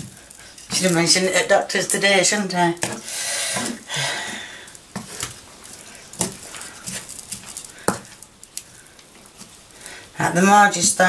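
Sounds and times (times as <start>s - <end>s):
breathy hiss: 0.0s - 1.0s, 2.8s - 10.3s
wooden spatulas scraping frying pan: 0.0s - 10.0s
wood knocking on pan: 4.9s - 5.4s, 6.2s - 8.2s.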